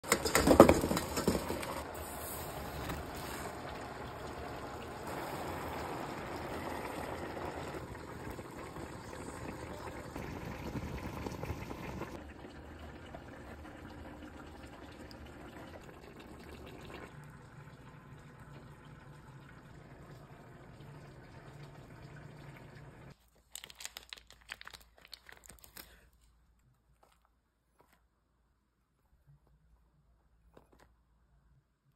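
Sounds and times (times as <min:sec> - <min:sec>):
water boiling: 0:00.0 - 0:23.2.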